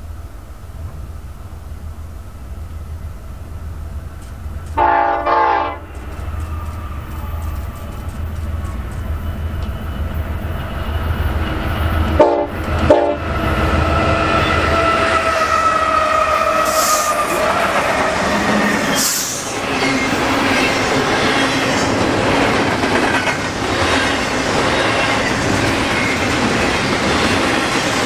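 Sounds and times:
diesel locomotive rumble: 0.0s - 28.0s
train air horn blasts: 4.8s - 6.6s, 12.2s - 13.3s, 14.3s - 18.3s.

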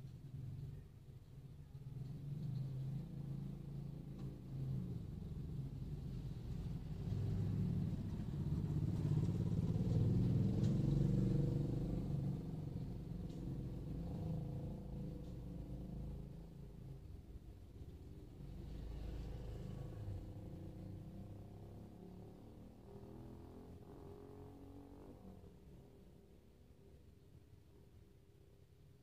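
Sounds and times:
low steady engine hum: 0.0s - 29.0s
small motorcycle engine passing: 1.7s - 26.3s.

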